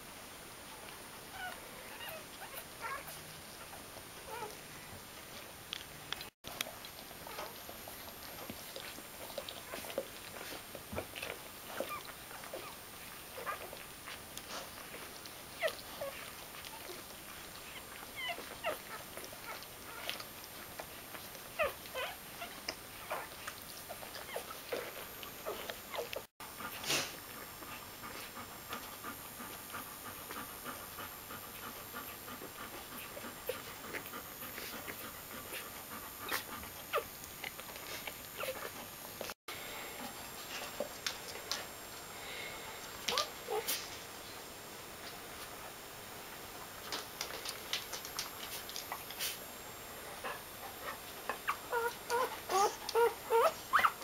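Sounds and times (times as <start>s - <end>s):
puppies squeaking and whimpering: 1.3s - 4.5s, 8.3s - 13.8s, 17.6s - 20.2s, 21.1s - 26.3s, 36.2s - 38.8s, 50.2s - 54.0s.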